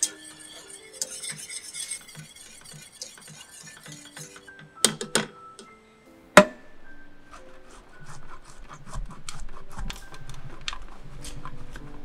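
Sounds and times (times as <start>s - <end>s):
cheese scraping on metal grater: 0.0s - 4.5s, 7.3s - 12.0s.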